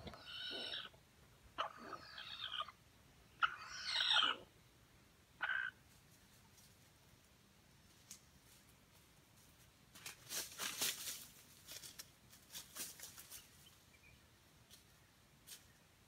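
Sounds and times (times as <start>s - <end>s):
dry leaves rustling and crackling: 7.9s - 13.7s.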